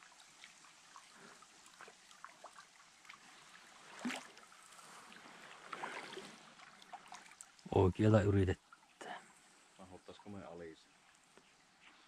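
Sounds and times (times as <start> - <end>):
paddle stroke in water: 0.0 - 7.7
water dripping from paddles: 0.0 - 12.0.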